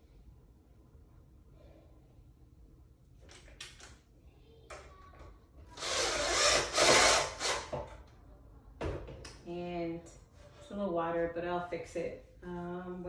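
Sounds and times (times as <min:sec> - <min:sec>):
cordless drill driving screw: 0:05.8 - 0:07.7.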